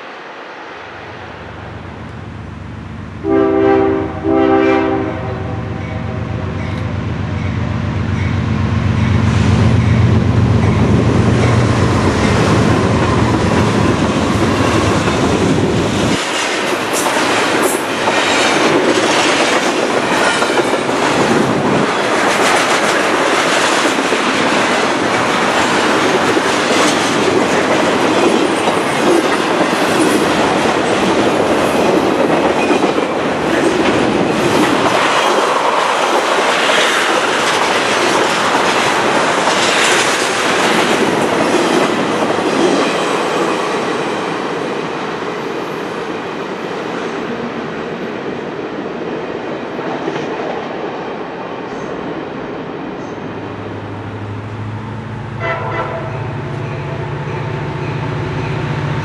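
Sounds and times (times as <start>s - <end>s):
diesel locomotive engine drone: 0.0s - 49.4s, 50.6s - 59.0s
train wheels clacking on rails: 5.7s - 45.0s.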